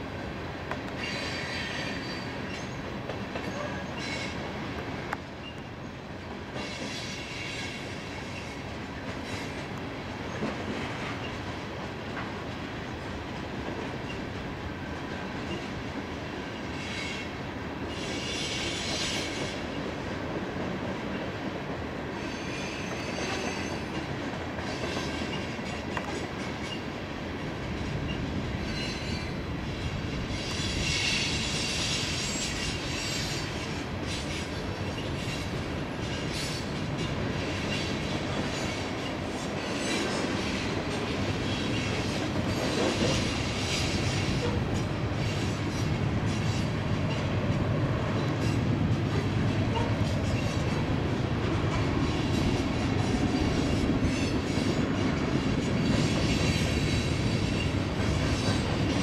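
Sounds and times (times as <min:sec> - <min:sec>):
hopper cars rumbling: 0:33.8 - 0:59.0.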